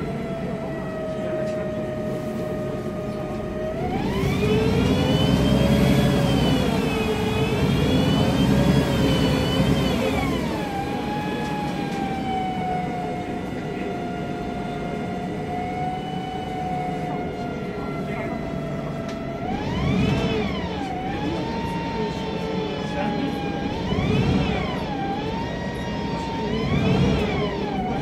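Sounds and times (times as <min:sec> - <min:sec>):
bus engine rumble: 0:00.0 - 0:28.0
gearbox whine: 0:03.6 - 0:28.0.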